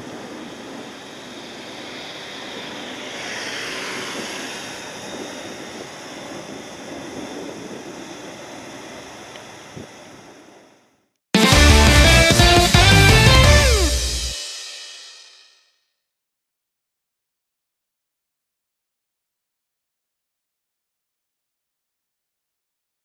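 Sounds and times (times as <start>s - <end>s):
jet airliner on approach: 0.0s - 10.8s.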